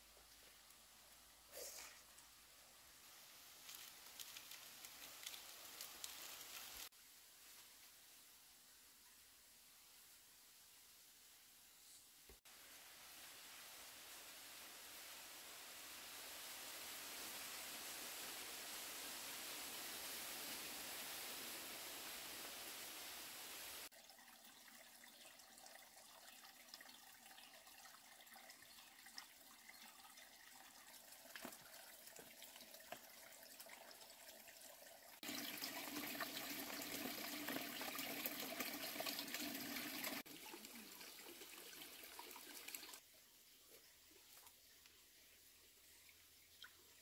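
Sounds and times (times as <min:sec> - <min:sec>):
stream water trickling: 0:23.8 - 0:43.0, 0:45.8 - 0:47.0
light water splashes: 0:45.9 - 0:47.0.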